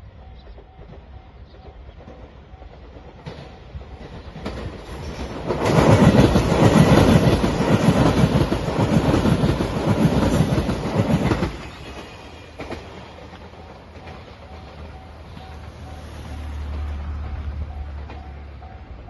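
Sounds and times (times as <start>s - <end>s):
train wheels clattering over rails: 0.4s - 19.0s.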